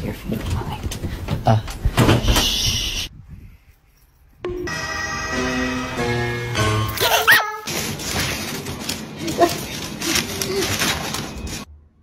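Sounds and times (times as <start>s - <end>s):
crackling rustling noise: 7.6s - 11.7s.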